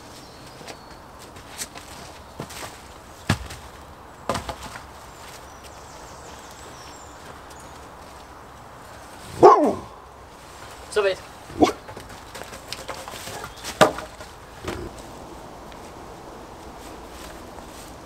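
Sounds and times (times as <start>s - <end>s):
dog barking: 9.4s - 9.9s
wooden poles knocking: 11.5s - 15.0s.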